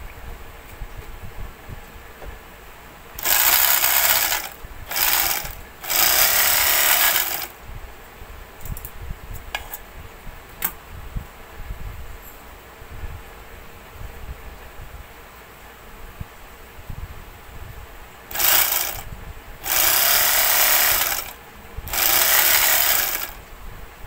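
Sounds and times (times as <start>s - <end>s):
overlock sewing machine running: 3.2s - 7.5s, 18.3s - 23.4s.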